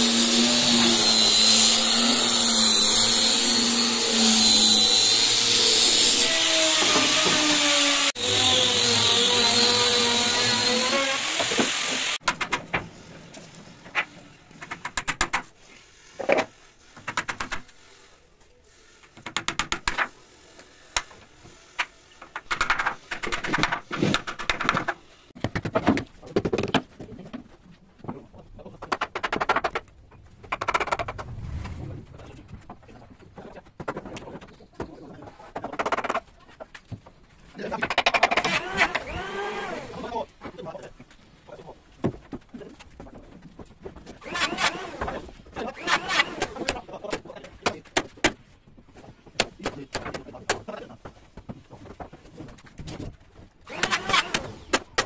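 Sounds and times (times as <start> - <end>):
electric planer whining: 0.0 - 12.2.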